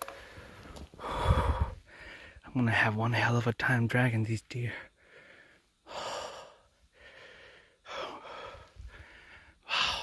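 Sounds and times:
man breathing heavily: 0:00.0 - 0:02.5, 0:04.8 - 0:10.0.

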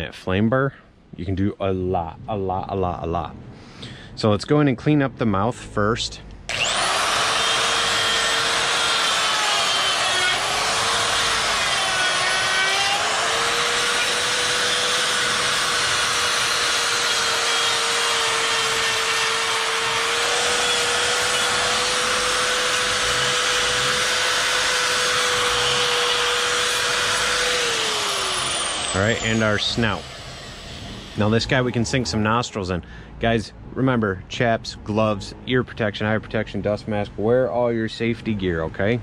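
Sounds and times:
die grinder carving wood: 0:06.5 - 0:31.6.

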